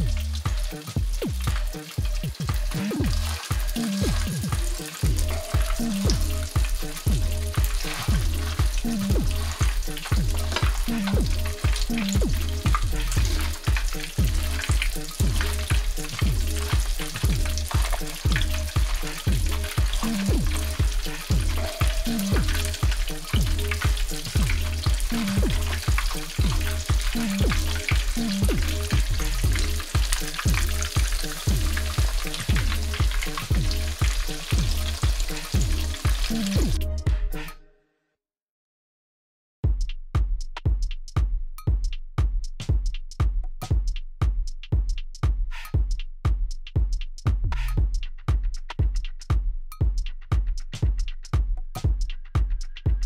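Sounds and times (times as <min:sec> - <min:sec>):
fish frying in hot oil: 0:00.0 - 0:36.8
background music with heavy bass beat: 0:00.0 - 0:37.6, 0:39.6 - 0:53.0.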